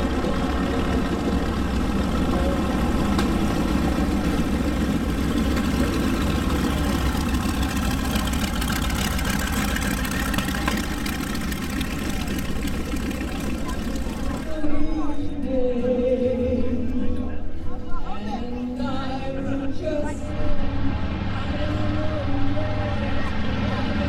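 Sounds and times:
radial aircraft engines droning: 0.0 - 15.5.

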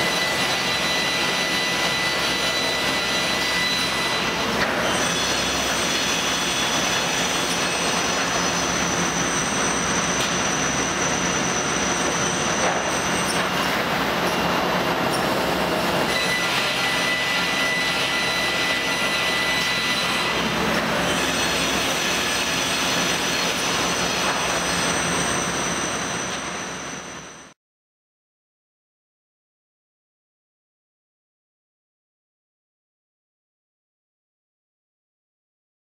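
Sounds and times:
industrial machine noise: 0.0 - 27.6.

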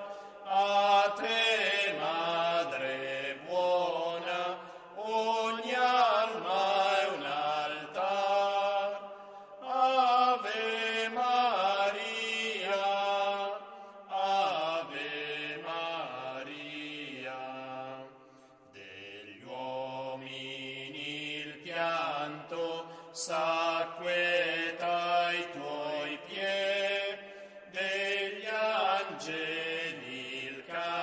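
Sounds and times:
hymn sung with vibrato: 0.0 - 31.0.

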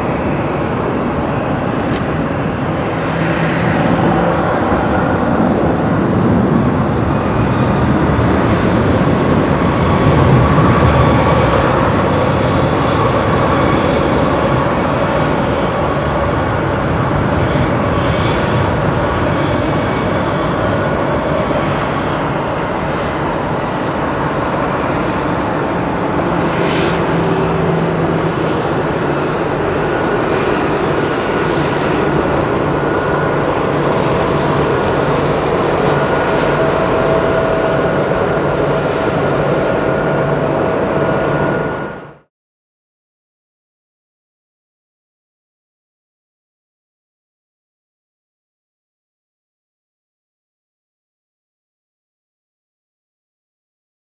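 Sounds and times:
jet engines at taxi power: 0.0 - 42.3.

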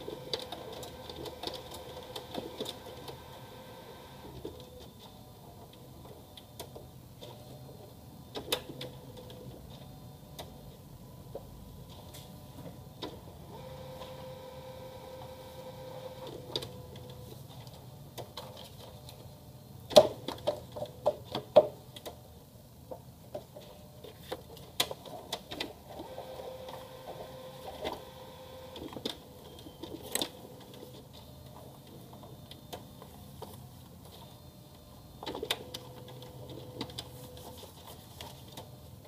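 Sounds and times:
printer motor whine: 0.0 - 17.4, 25.5 - 37.8.

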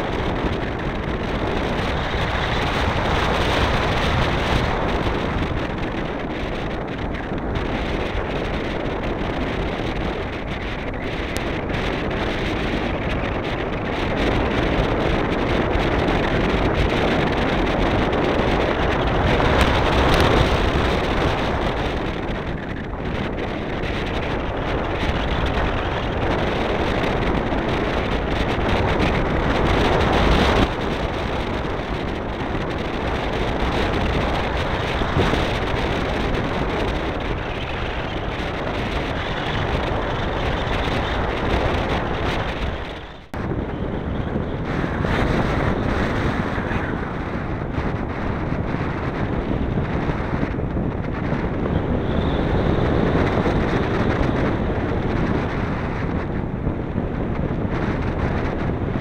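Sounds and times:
wind noise on microphone: 0.0 - 59.0.

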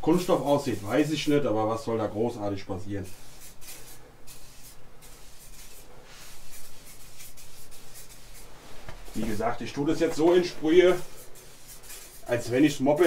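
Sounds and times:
aerosol spray hissing: 3.0 - 13.0.

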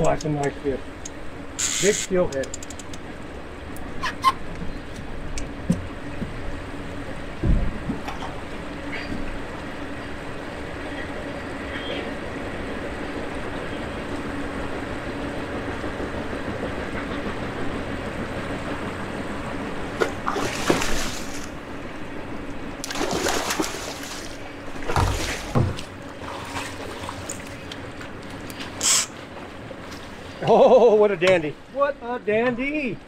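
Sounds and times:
low motor hum: 0.0 - 33.0
water splashing and sloshing: 2.5 - 30.6
fish thrashing in water: 20.0 - 21.6, 22.8 - 27.6.

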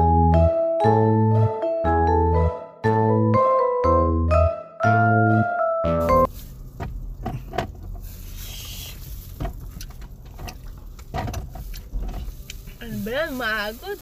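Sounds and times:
mallet music jingle: 0.0 - 6.3.

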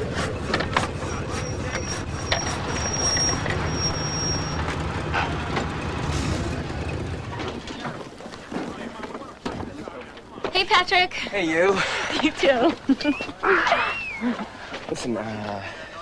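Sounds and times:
car engine rumbling: 0.0 - 10.0
thin high whistle: 1.0 - 4.6, 13.6 - 14.4.

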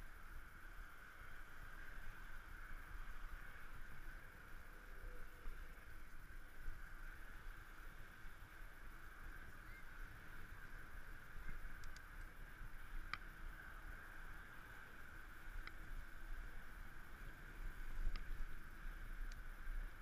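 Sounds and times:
light clicks: 11.7 - 12.3.

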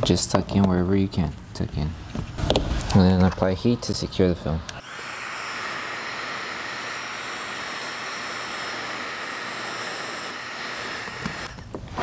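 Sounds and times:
heat gun fan with high whine: 2.4 - 12.0.

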